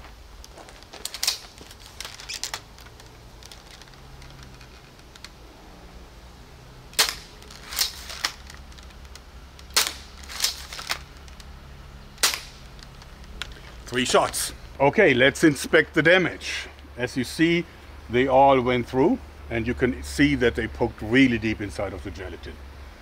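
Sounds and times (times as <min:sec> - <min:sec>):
crossbow handling clicks: 0:00.4 - 0:05.4, 0:06.9 - 0:11.6.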